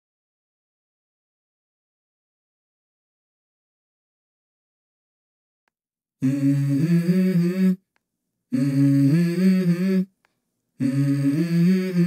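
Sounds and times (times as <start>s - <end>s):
person humming wordless phrases: 6.2s - 7.9s, 8.5s - 10.2s, 10.8s - 12.0s.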